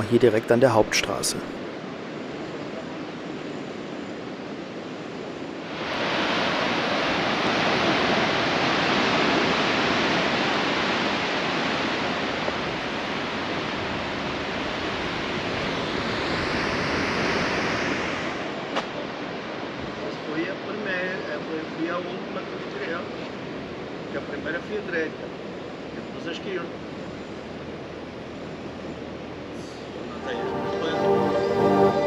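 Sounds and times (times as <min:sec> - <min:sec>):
surf breaking on rocky shore: 0:05.7 - 0:18.6.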